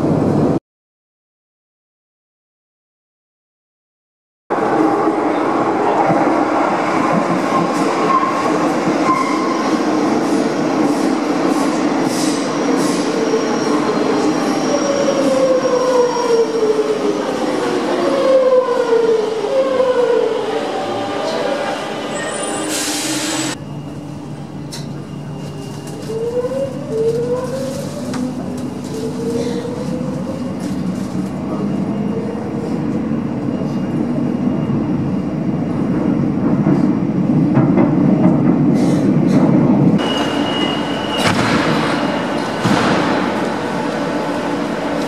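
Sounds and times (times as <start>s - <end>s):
train rumble: 19.3s - 45.0s.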